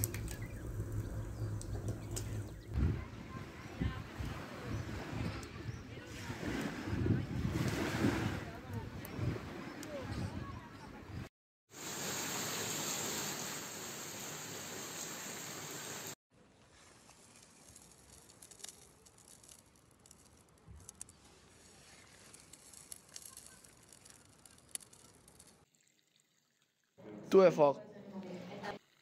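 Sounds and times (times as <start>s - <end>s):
fountain water splashing: 0.0s - 2.7s, 11.8s - 16.2s
pebbles trickling onto beach: 0.0s - 2.8s, 15.2s - 25.8s.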